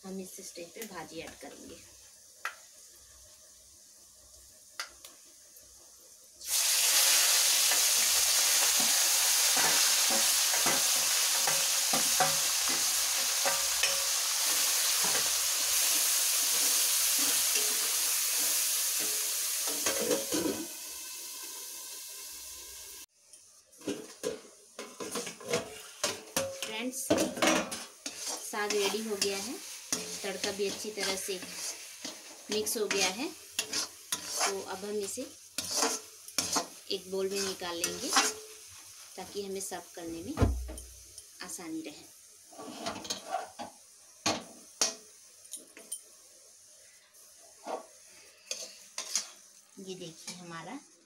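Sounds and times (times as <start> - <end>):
greens sizzling in hot oil: 0.0 - 51.0
spoon scraping a pan: 7.0 - 20.7, 23.8 - 38.7, 42.5 - 43.7, 47.6 - 49.4.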